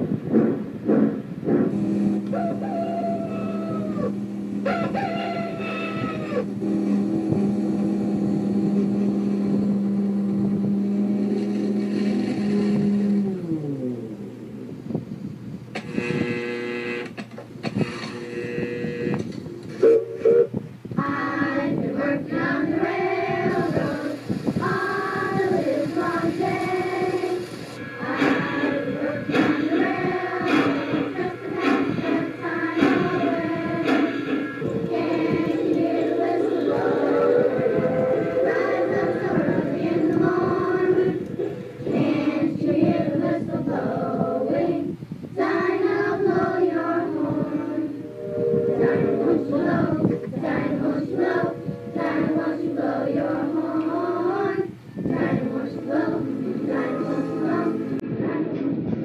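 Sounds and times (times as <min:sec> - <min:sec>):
loud pitched toots: 0:00.9 - 0:13.3, 0:15.8 - 0:17.2, 0:17.8 - 0:20.7, 0:27.8 - 0:39.7, 0:47.9 - 0:53.0
child-like voice singing: 0:21.0 - 0:27.4, 0:48.7 - 0:58.8
children singing together: 0:21.0 - 0:58.4.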